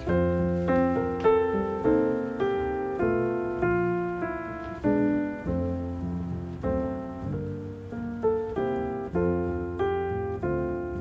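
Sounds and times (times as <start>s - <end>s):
gentle piano melody: 0.0s - 11.0s.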